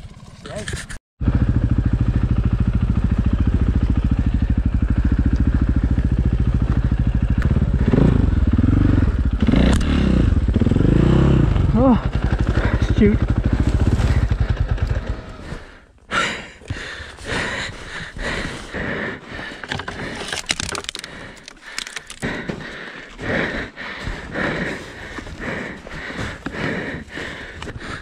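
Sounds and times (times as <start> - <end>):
man breathing heavily: 4.0 - 7.0, 12.0 - 28.0.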